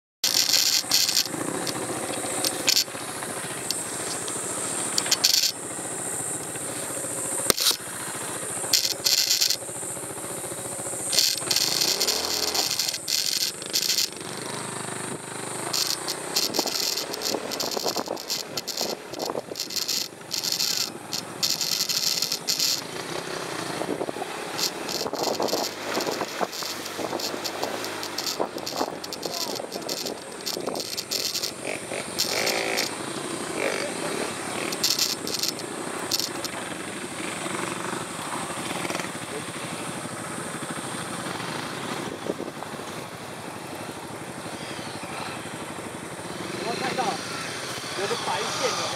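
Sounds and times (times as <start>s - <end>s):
motorcycle engine running: 0.2s - 48.9s
tyres crunching on gravel: 11.1s - 14.4s, 23.9s - 32.9s.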